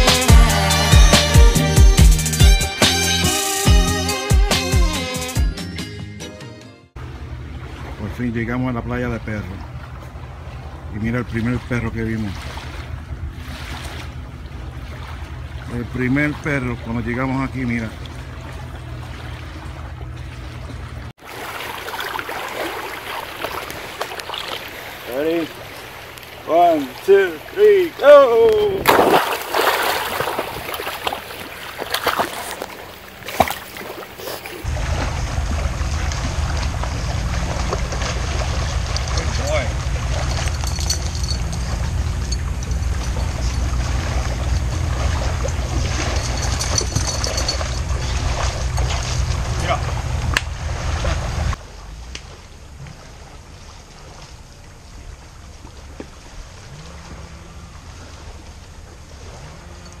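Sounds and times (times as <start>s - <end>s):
water splashing around swimming dog: 7.4s - 60.0s
steady low rumble: 34.6s - 53.6s.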